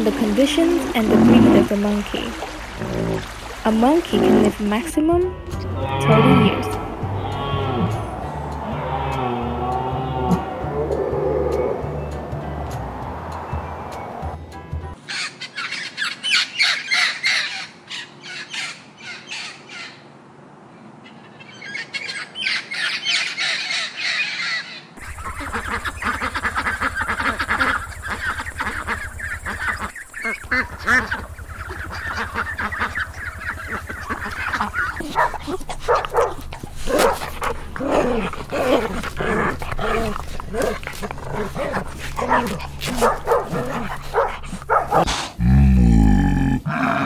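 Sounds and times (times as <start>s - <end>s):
ducks quacking: 0.0s - 12.5s, 23.4s - 45.4s
parrots squawking: 15.1s - 20.1s, 21.4s - 45.2s
dogs barking: 25.0s - 45.4s.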